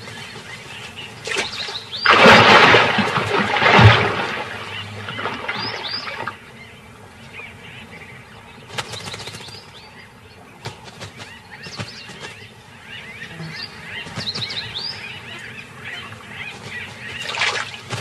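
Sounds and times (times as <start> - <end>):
birds chirping: 0.0 - 18.0
small water splashes: 1.2 - 6.4, 17.2 - 18.0
large water splash: 1.3 - 6.4.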